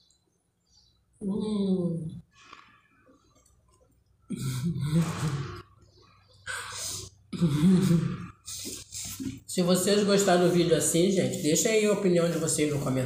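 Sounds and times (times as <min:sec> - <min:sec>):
quiet chewing: 0:02.4 - 0:04.3
person speaking: 0:06.5 - 0:13.0.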